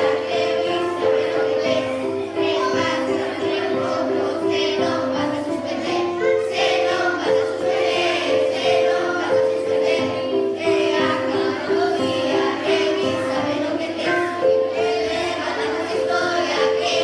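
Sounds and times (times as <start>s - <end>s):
children singing a carol: 0.0s - 17.0s.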